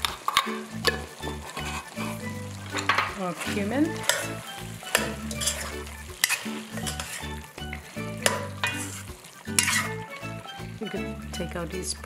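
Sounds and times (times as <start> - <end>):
spoon clicking against pan: 0.0 - 1.1, 4.0 - 8.8
beef sizzling in a pan: 0.0 - 12.0.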